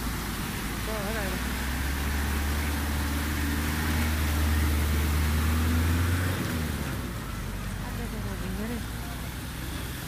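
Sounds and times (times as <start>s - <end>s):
truck engine running: 0.0s - 10.0s
water rushing and splashing: 0.0s - 10.0s.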